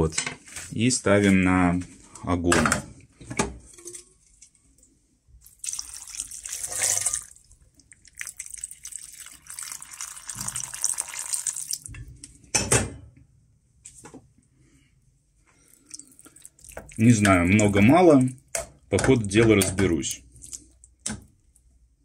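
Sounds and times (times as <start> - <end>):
tap water splashing into pot: 5.5 - 12.0, 16.3 - 17.8.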